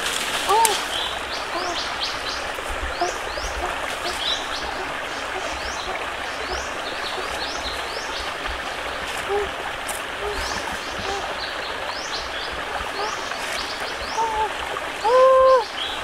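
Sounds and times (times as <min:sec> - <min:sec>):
forest stream rushing: 0:00.0 - 0:16.0
faint low calls: 0:00.4 - 0:15.8.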